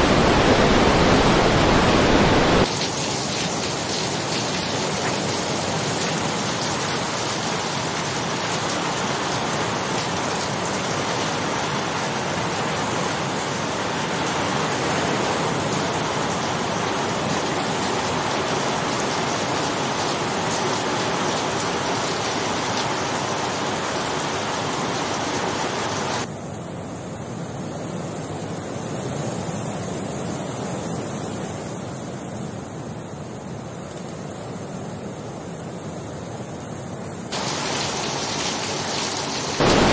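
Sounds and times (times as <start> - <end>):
fast-flowing river rushing: 0.0 - 26.3, 37.3 - 39.9
floodwater rushing: 0.0 - 26.3, 37.3 - 39.9
heavy rain falling: 0.0 - 26.3, 37.3 - 39.9.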